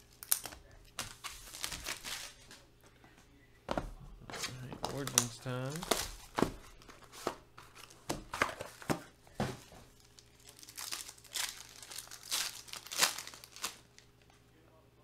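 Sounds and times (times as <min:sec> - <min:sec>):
foil pack crinkling and tearing: 0:00.0 - 0:02.4, 0:09.9 - 0:14.1
plastic wrap tearing: 0:00.0 - 0:02.4, 0:09.9 - 0:14.1.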